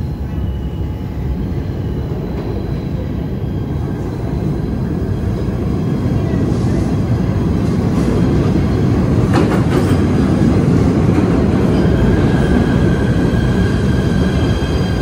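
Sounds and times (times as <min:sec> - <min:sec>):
high brake squeal: 0:00.0 - 0:05.5, 0:11.6 - 0:15.0
train wheels rumbling on rail: 0:00.0 - 0:15.0
train wheel clacks: 0:09.2 - 0:10.4.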